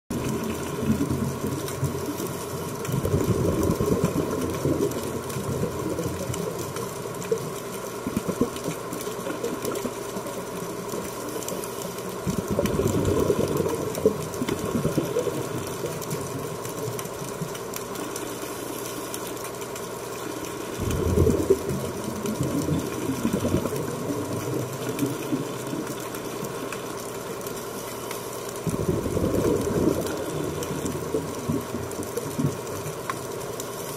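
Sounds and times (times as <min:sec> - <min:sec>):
diver exhaling bubbles: 0:00.1 - 0:06.6, 0:12.2 - 0:16.4, 0:20.7 - 0:26.6, 0:28.6 - 0:32.8
motor hum with tones: 0:00.1 - 0:33.9.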